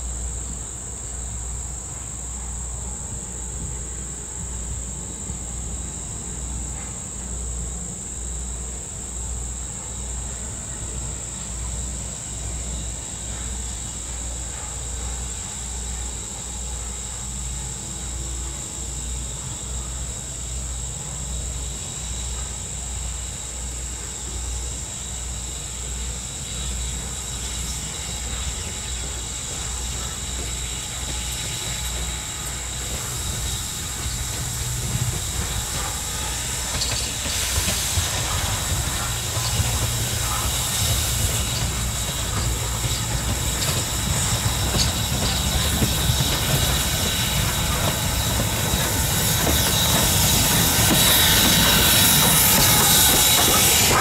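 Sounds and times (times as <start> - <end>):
insects buzzing: 0.0 - 54.0
steam locomotive pulsing: 0.0 - 54.0.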